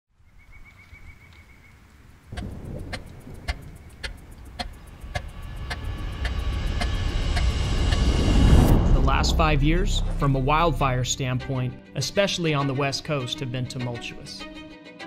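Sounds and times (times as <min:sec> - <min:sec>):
sharp ticks: 0:02.3 - 0:08.2
high chirps: 0:02.3 - 0:08.4
heavy machinery rumbling: 0:02.4 - 0:11.2.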